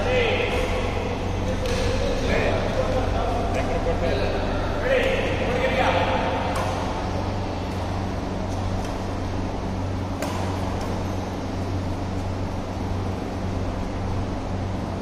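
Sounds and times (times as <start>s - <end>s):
low mechanical hum: 0.0s - 15.0s
racket striking shuttlecock: 6.4s - 9.1s, 10.0s - 11.1s.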